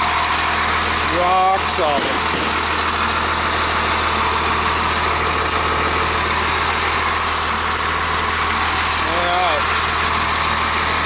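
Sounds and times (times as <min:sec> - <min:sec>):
diesel bus engine idling: 0:00.0 - 0:11.0.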